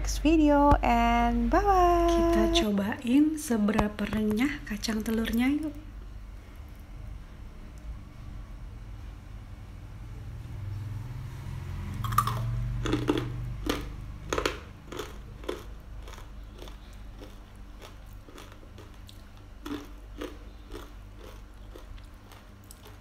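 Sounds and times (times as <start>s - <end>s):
crunchy peanuts being chewed: 11.9s - 23.0s.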